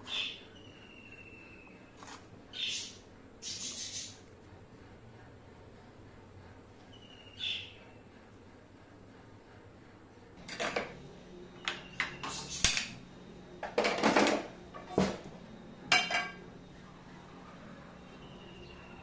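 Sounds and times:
frying pan clattering on grate: 15.9s - 16.4s.

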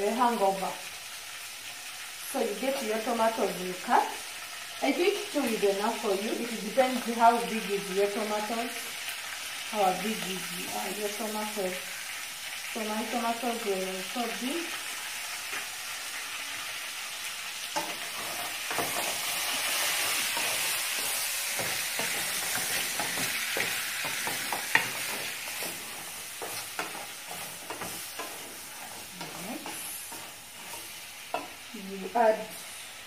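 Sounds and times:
meat sizzling in a saucepan: 0.0s - 33.0s
utensil scraping a pan: 17.8s - 31.6s.

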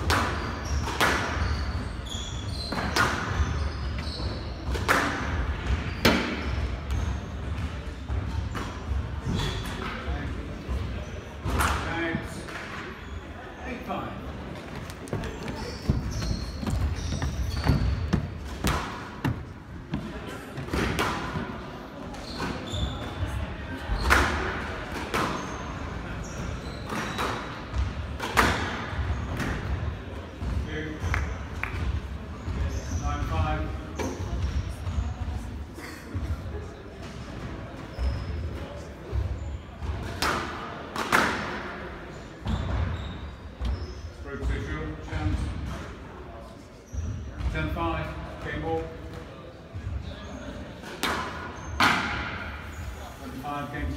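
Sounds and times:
shoes squeaking on wooden floor: 0.4s - 4.7s, 14.6s - 21.5s, 22.1s - 23.4s, 25.2s - 27.3s, 42.4s - 44.2s.

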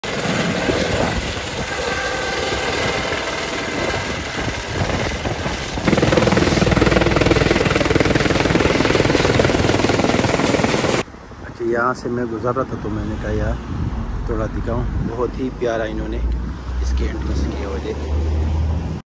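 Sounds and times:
helicopter engine noise: 0.0s - 11.1s
helicopter passing close: 0.0s - 11.1s
helicopter rotor chop: 0.0s - 11.1s.

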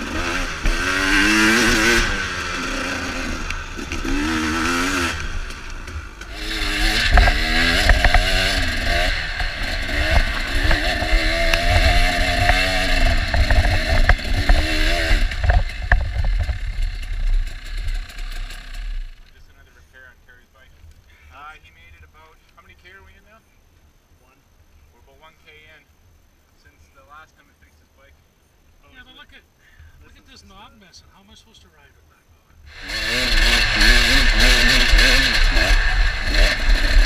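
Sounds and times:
dirt bike engine revving: 0.0s - 19.4s, 32.7s - 37.0s
steady rushing hiss: 0.0s - 37.0s.

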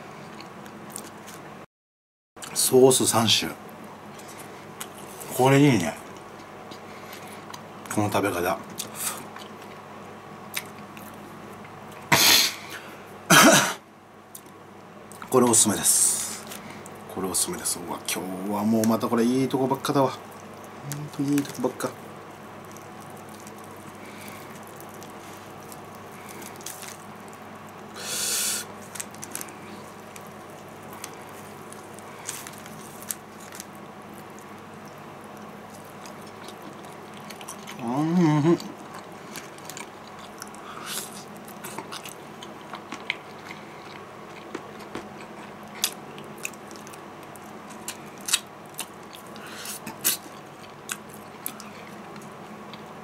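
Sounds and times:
man humming mmm: 37.8s - 38.8s.

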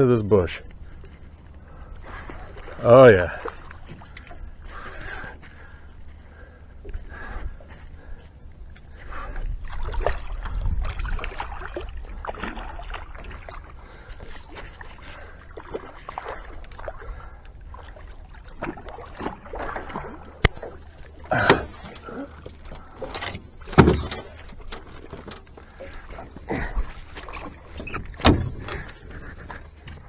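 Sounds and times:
wind rumbling on microphone: 6.0s - 14.9s
gear thumping against boat: 18.6s - 30.0s
rustling and reel clicks: 21.7s - 26.0s.

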